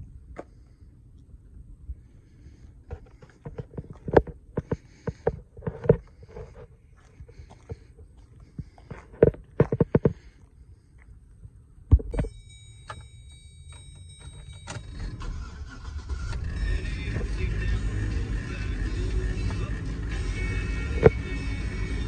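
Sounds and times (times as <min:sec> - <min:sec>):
engine starting and running: 0:02.4 - 0:10.4, 0:12.0 - 0:22.0
sharp clicks and knocks: 0:08.6 - 0:10.3, 0:11.9 - 0:13.1
electronic warning chime: 0:12.1 - 0:17.1.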